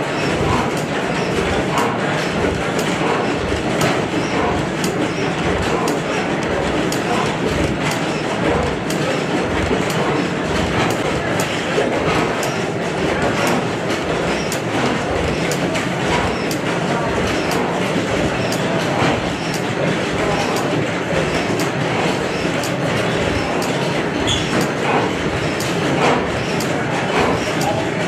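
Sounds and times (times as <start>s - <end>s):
sharp mechanical clicks: 0.0s - 28.0s.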